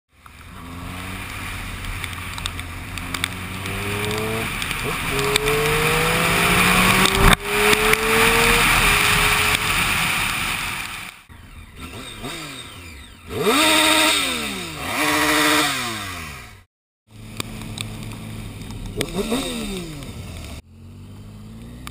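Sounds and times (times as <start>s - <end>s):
motorcycle engine accelerating: 0.2s - 21.9s
wind noise: 1.1s - 11.1s.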